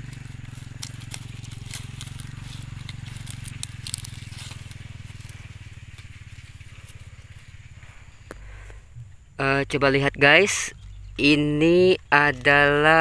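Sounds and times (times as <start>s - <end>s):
leaves crackling and rustling: 0.0s - 8.8s
low pulsing hum: 0.0s - 13.0s.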